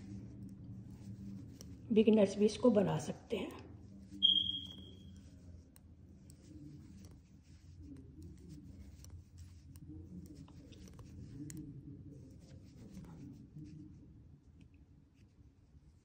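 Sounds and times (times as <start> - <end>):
knitting needles clicking: 0.0 - 1.8, 4.2 - 13.2
yarn rubbing: 0.0 - 2.5, 3.7 - 16.0.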